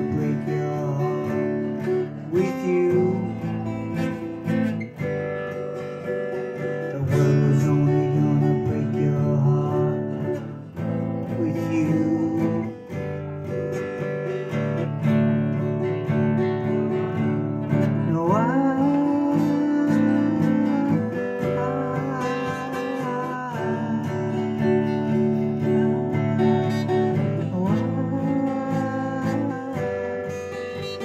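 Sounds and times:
acoustic guitar strumming: 0.0s - 31.0s
man singing: 0.0s - 31.0s.

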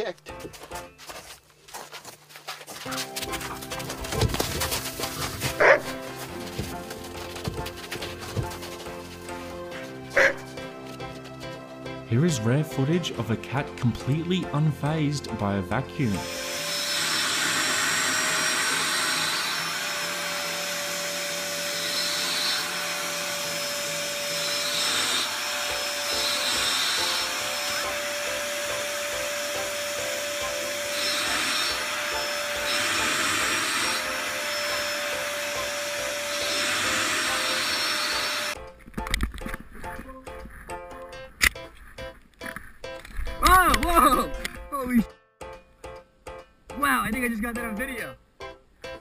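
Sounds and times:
vacuum cleaner running: 16.2s - 38.6s.

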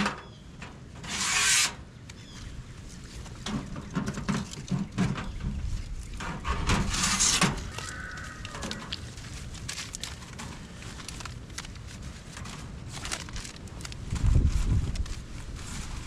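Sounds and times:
paper rustling scrapes: 1.0s - 1.9s, 6.2s - 16.0s
wind rumbling on microphone: 2.2s - 16.0s.

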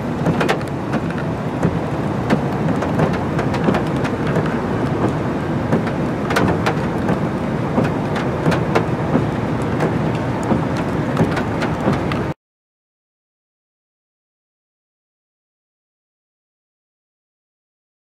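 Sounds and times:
crackling raindrops: 0.0s - 12.4s
steady rain: 0.0s - 12.4s.

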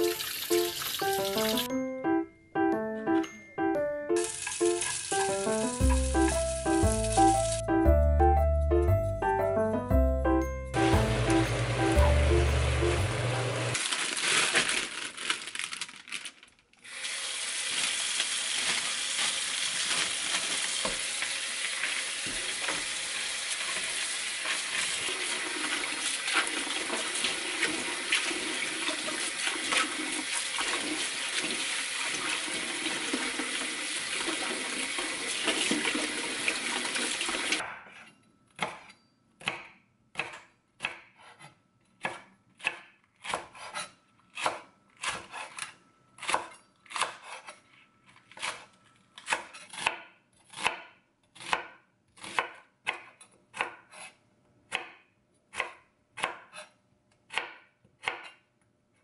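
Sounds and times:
tap water running into sink: 0.0s - 1.7s, 4.2s - 7.4s, 17.0s - 37.6s
knife chopping on wooden board: 38.6s - 47.5s, 49.3s - 54.1s, 54.7s - 56.6s, 57.3s - 58.4s.

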